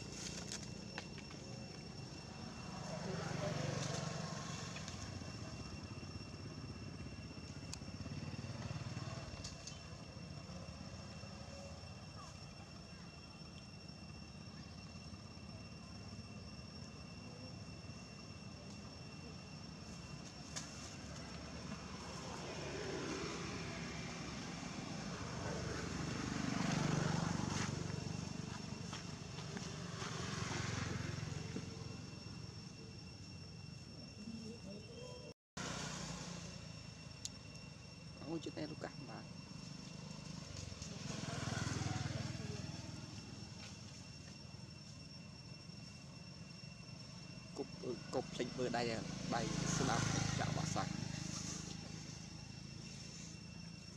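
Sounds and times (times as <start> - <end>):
vehicle engine rumble: 0.0 - 35.0, 35.6 - 53.9
motor vehicle passing: 20.9 - 32.1, 35.6 - 36.8, 39.5 - 43.6, 48.0 - 53.3.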